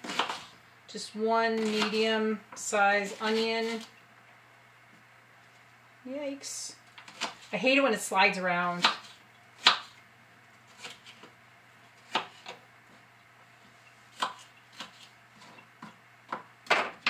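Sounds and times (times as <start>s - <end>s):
knife chopping on wooden board: 0.0s - 0.5s, 8.8s - 9.9s, 12.0s - 12.6s, 14.1s - 17.0s.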